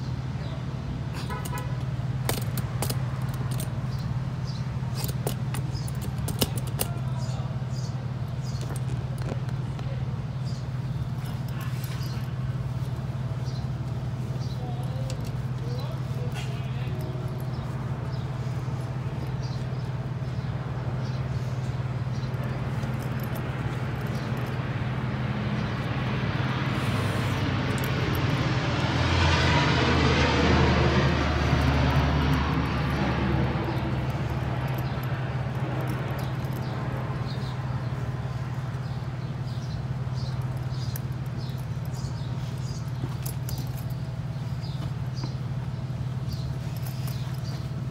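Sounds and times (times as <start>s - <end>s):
aircraft passing overhead: 15.9s - 40.5s.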